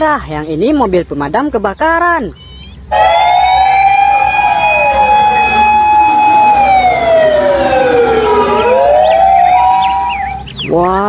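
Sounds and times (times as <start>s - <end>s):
fire engine sirens: 2.9s - 10.5s.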